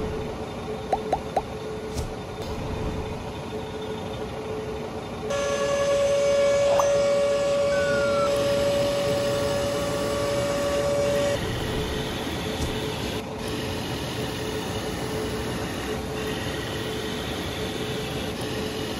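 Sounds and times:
small water pump whining: 3.5 - 18.9
toy motors whining: 5.3 - 18.9.

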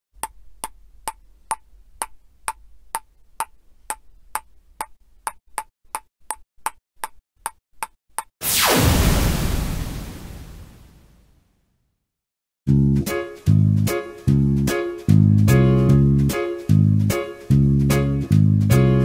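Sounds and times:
evenly spaced ticks: 0.2 - 8.0.

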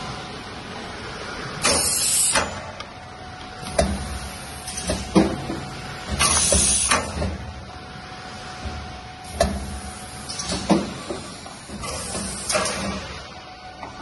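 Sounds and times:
machine running hum: 0.0 - 14.0
pneumatic air hiss: 1.6 - 2.6, 6.2 - 7.2, 9.2 - 13.2.

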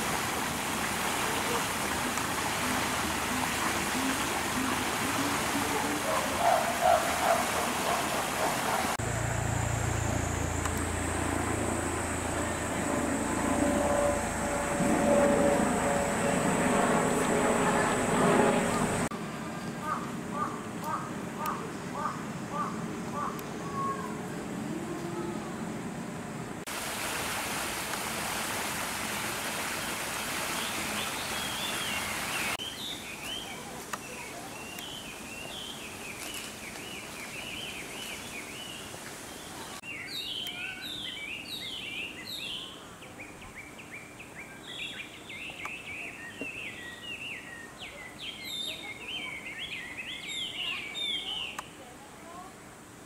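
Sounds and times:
wild birds chirping: 2.7 - 10.6.

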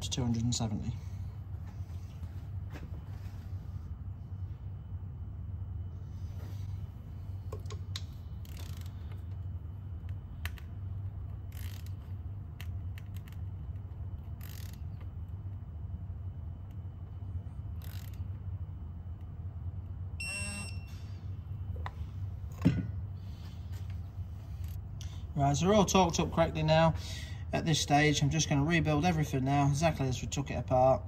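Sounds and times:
steady low hum: 0.0 - 31.0
torque wrench electronic beep: 20.2 - 21.1.

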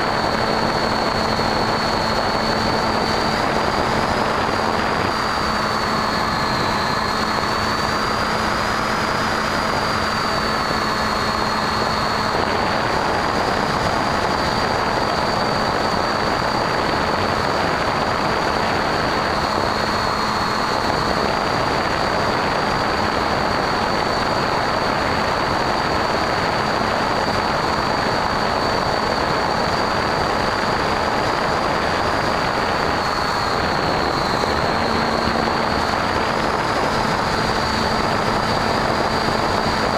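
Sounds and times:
electric motor and propeller whine: 0.0 - 39.9
wind rushing: 25.0 - 39.9.

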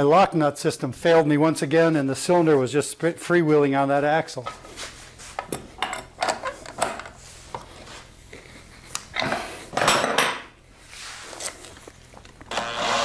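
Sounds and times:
scraping noises: 10.8 - 11.9.

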